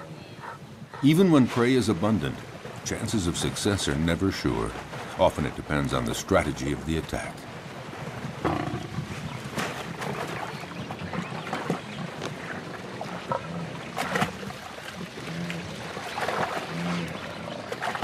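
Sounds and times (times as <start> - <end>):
lioness growling: 13.2 - 16.0.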